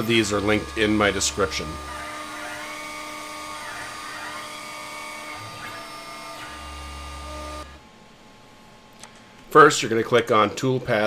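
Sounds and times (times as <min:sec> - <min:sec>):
router spindle whine carving wood: 0:00.0 - 0:07.8.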